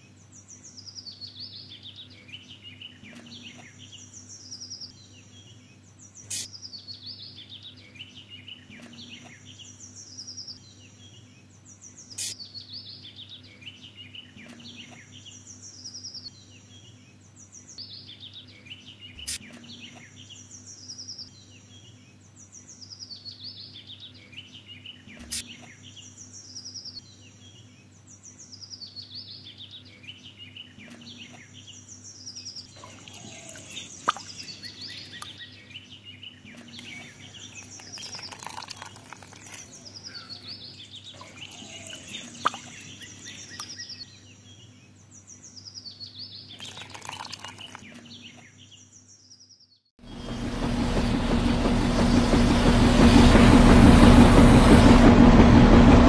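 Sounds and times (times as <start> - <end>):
birds chirping: 0.0 - 55.7
steady low hum: 50.0 - 56.0.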